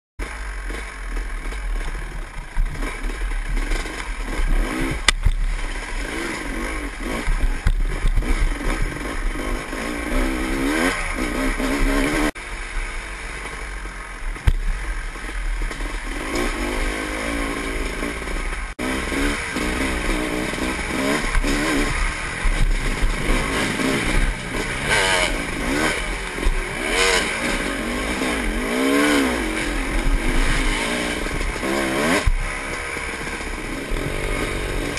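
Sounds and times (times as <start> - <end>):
bike rattling: 0.2 - 34.9
dirt bike engine revving: 0.2 - 34.9.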